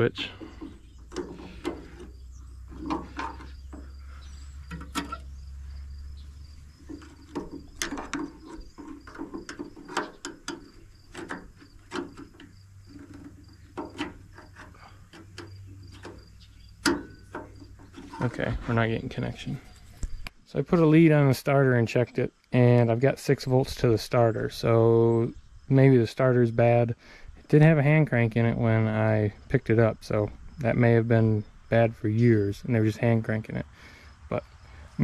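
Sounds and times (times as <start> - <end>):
metal clicks and scrapes: 0.0 - 3.9, 4.6 - 5.4, 6.7 - 20.3.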